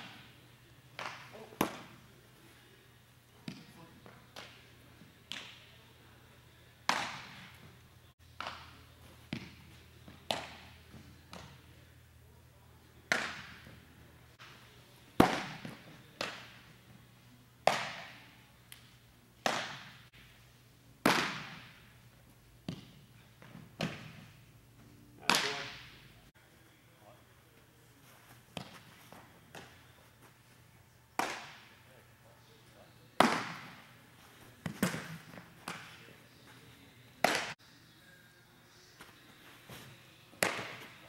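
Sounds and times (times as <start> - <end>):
baseball smacking into gloves: 31.2 - 31.7, 34.6 - 36.0, 40.4 - 41.0.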